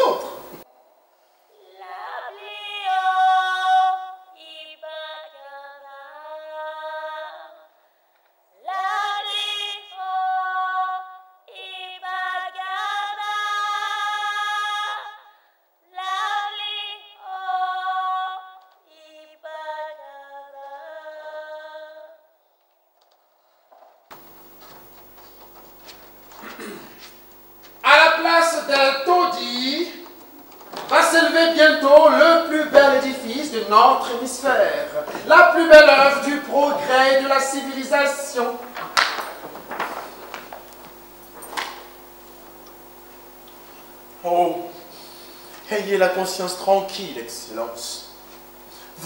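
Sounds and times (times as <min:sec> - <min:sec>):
woman singing unaccompanied: 0:01.6 - 0:07.7, 0:08.6 - 0:15.2, 0:15.9 - 0:22.2.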